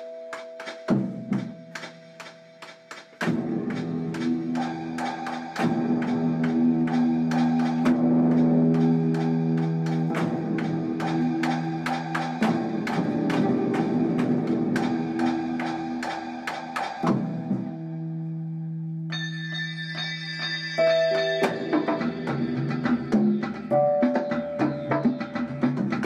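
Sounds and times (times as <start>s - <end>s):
woodblock-like ticking percussion: 0.0s - 17.2s, 19.9s - 26.0s.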